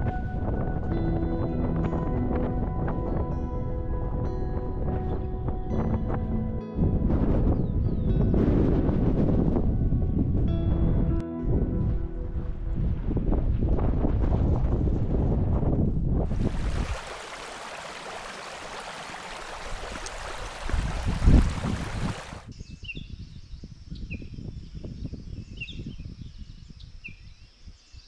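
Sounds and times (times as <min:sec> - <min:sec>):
wind buffeting microphone: 0:00.0 - 0:27.9
stream running over stones: 0:16.3 - 0:22.5.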